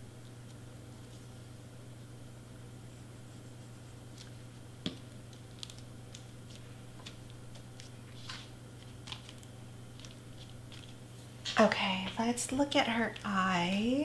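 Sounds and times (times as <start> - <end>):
low steady hum: 0.0 - 14.0
cardstock rustling: 5.3 - 11.0.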